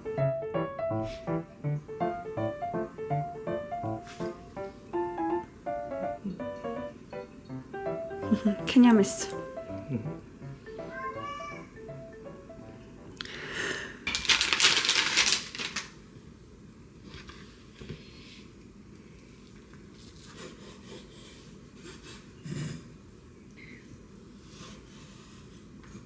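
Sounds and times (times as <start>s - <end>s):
crinkling rustling of handling: 14.1s - 16.0s.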